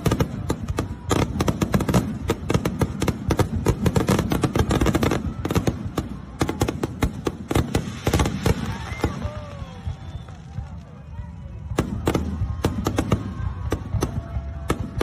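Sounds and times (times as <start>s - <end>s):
firecrackers banging: 0.0s - 15.0s.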